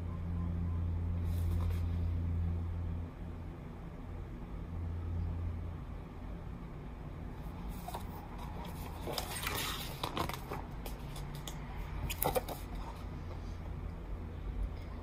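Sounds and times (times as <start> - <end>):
steady low hum: 0.0 - 15.0
paper rustling: 7.7 - 11.4.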